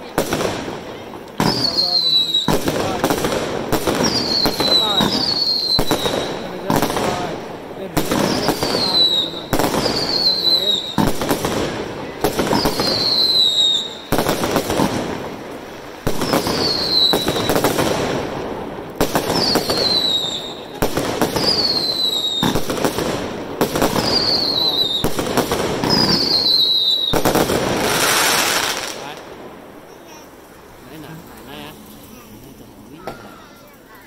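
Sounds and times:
firework bangs and crackle: 0:00.0 - 0:33.8
falling firework whistle: 0:01.4 - 0:03.0, 0:03.9 - 0:06.4, 0:08.1 - 0:11.3, 0:12.4 - 0:14.3, 0:16.1 - 0:17.8, 0:19.1 - 0:22.7, 0:23.8 - 0:29.0.

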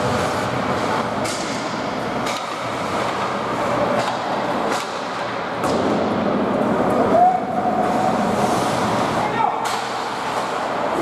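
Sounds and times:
rumble of ice hockey play: 0:00.0 - 0:11.0
skates scraping on ice: 0:07.8 - 0:11.0.

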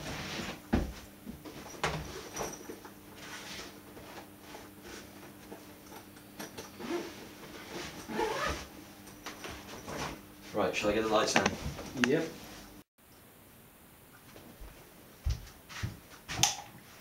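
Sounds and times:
clothes rustling: 0:06.8 - 0:12.8.

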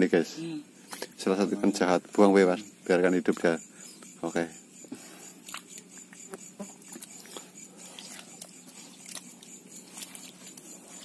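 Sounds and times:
wet fish clicks and patters: 0:05.2 - 0:11.0.

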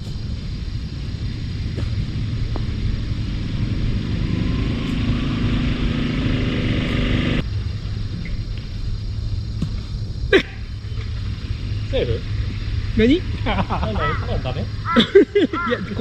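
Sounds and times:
golf cart running: 0:00.0 - 0:08.7.

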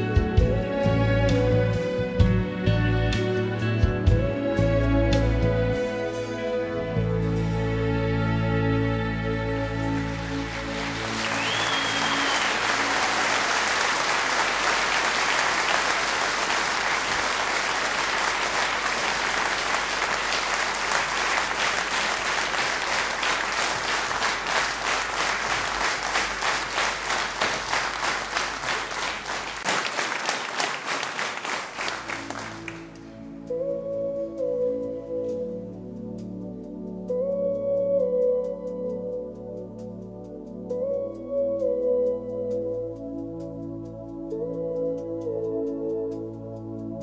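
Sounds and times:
audience applauding: 0:09.6 - 0:33.0
high whistle: 0:10.9 - 0:14.0.

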